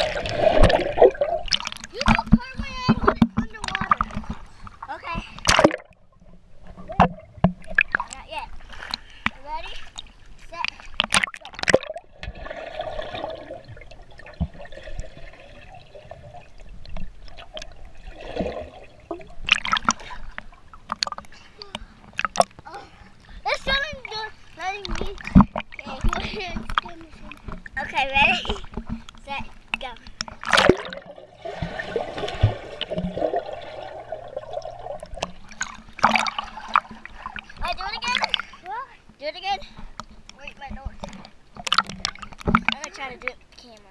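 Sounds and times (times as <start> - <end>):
muffled underwater rushing water: 0.0 - 43.5
small clicks underwater: 6.8 - 12.3, 19.1 - 23.3, 24.8 - 27.8, 28.4 - 31.1, 34.6 - 38.5, 39.9 - 43.9
loud splashing: 30.4 - 38.5.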